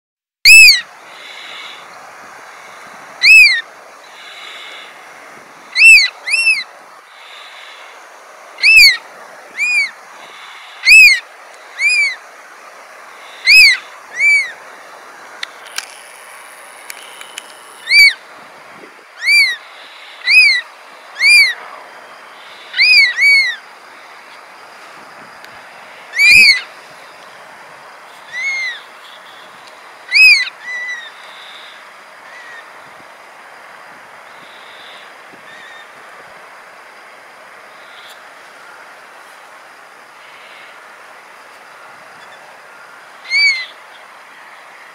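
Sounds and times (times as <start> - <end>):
oystercatchers whistled calls: 0.5 - 0.8, 3.2 - 3.6, 5.8 - 6.7, 8.6 - 9.0, 9.6 - 9.9, 10.8 - 11.2, 11.8 - 12.2, 13.4 - 14.6, 17.8 - 18.2, 19.2 - 19.6, 20.2 - 20.6, 21.2 - 21.6, 22.8 - 23.6, 26.2 - 26.6, 28.3 - 28.8, 30.1 - 31.1, 43.3 - 43.7.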